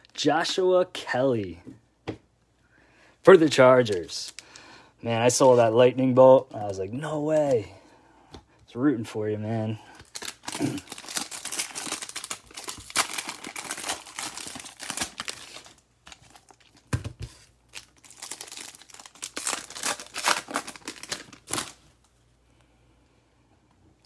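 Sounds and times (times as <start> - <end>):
foil wrappers crinkling and tearing: 9.9 - 22.0.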